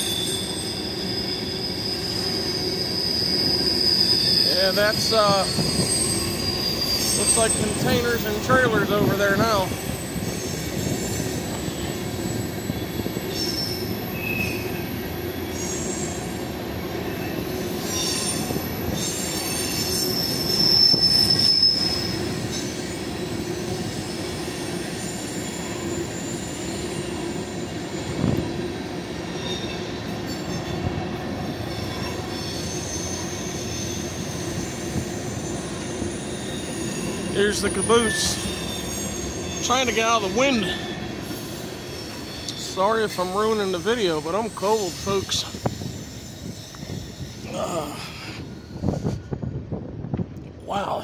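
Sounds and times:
train wheels squealing: 0.0 - 49.9
freight cars rumbling: 4.3 - 14.0, 34.0 - 51.0.

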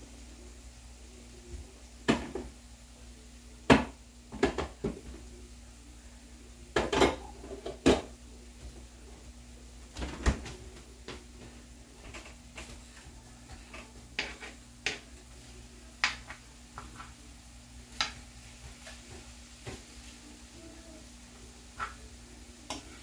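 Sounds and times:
faint steady hum: 0.0 - 23.0.

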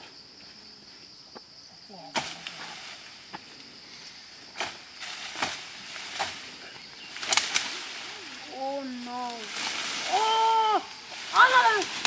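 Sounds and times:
branches snapping: 2.1 - 3.0, 4.6 - 12.0.

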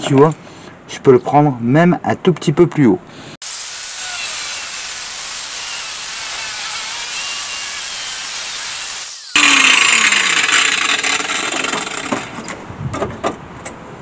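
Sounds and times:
angle grinder cutting steel: 3.4 - 12.5.

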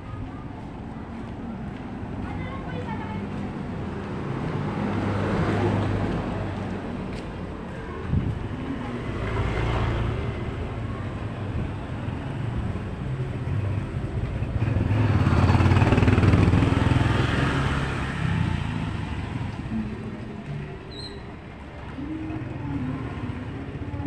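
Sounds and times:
small motorcycle engines passing: 12.1 - 20.2.

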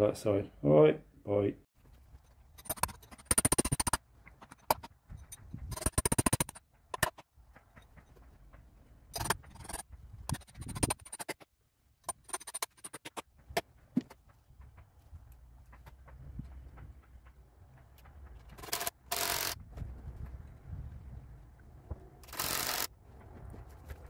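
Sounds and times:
rapid ratchet clicking: 2.6 - 4.9, 5.7 - 7.1, 18.6 - 19.6, 22.2 - 22.9.

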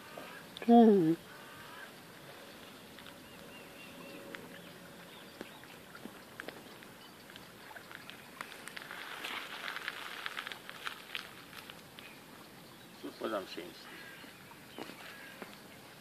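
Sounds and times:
birds chirping: 0.0 - 8.8, 11.8 - 16.0
rustling and crackling: 5.4 - 12.2.

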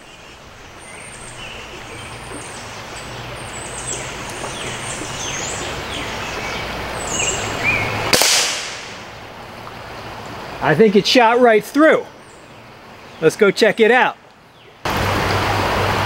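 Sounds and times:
birds chirping: 0.0 - 14.9
creek flowing: 0.0 - 16.0
pellet rifle shot: 8.1 - 9.1.

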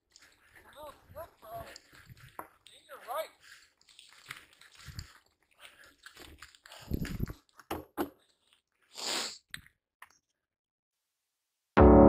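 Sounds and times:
bikes crunching over rough ground: 0.0 - 7.6
short hiss: 8.9 - 9.4.

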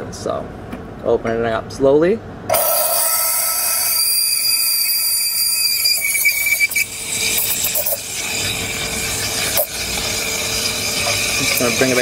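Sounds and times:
steam wand hissing in milk: 3.0 - 12.0.

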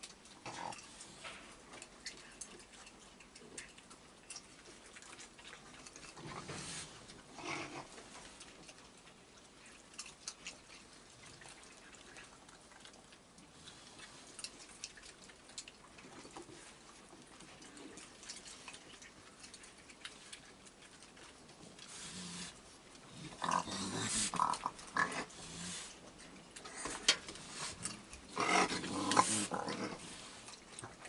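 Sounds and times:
rustling: 0.0 - 31.0.

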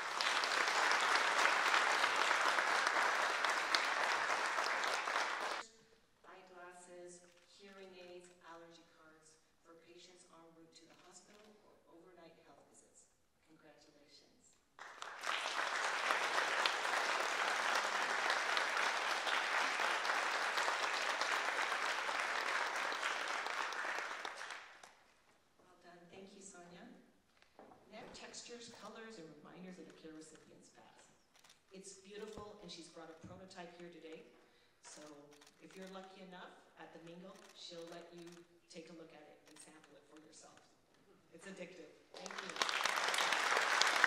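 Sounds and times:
audience applauding: 0.0 - 5.6, 14.8 - 24.9, 42.2 - 44.0.

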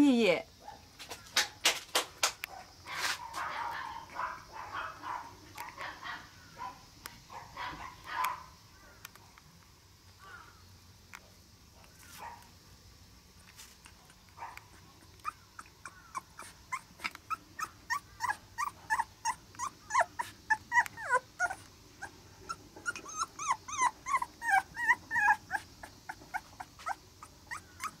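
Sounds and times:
puppy whining: 13.9 - 28.0.

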